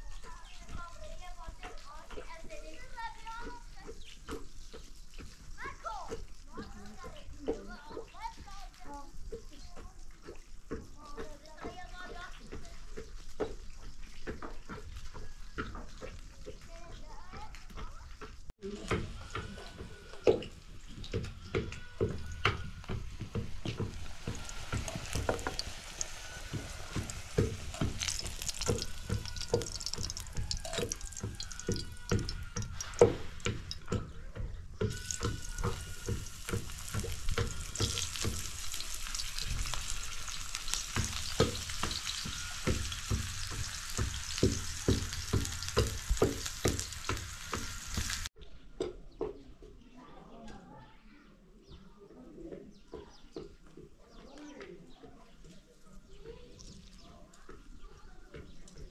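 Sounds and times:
wooden pestle pounding: 17.8s - 48.2s
food sizzling in oil: 18.8s - 34.0s, 34.8s - 48.3s.

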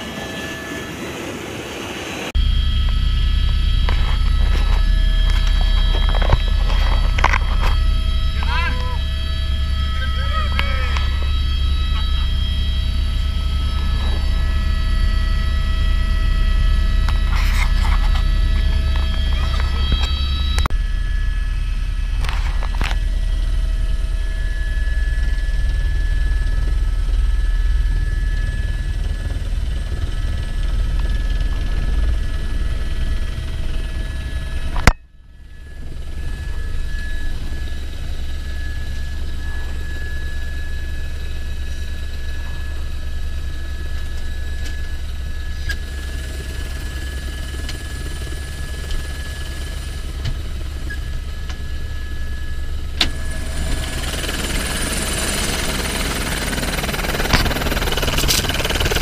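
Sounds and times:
helicopter turbine and rotor: 0.0s - 59.0s.

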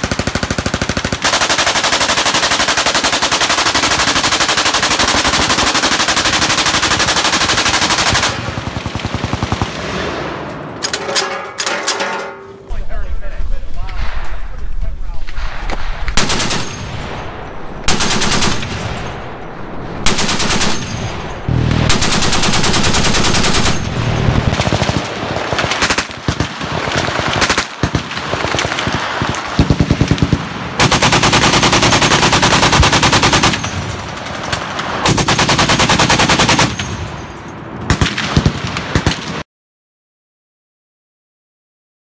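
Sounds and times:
heavy machine gun bursts: 20.1s - 26.4s.

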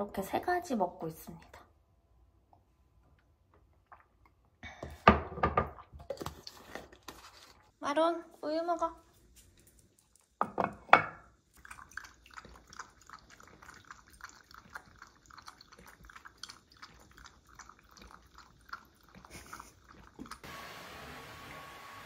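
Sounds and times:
dog lapping: 11.6s - 20.4s.

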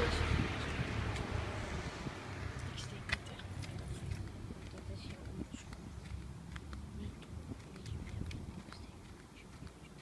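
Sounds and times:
handling rumble of camera: 0.3s - 10.0s
footsteps clicking: 3.0s - 10.0s.

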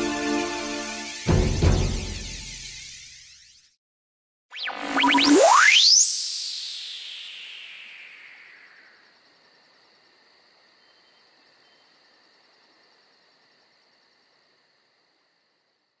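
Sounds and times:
faint high-pitched tone: 4.6s - 9.2s.

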